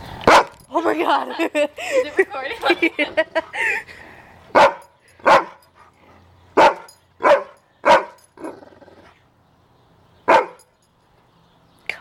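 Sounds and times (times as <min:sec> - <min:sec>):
large dog barking: 0:00.2 - 0:00.6, 0:04.5 - 0:05.7, 0:06.5 - 0:08.7, 0:10.2 - 0:10.7.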